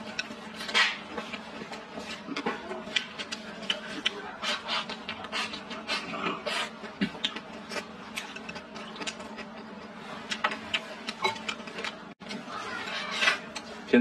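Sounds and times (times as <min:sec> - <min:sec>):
chewing: 0:00.0 - 0:13.7.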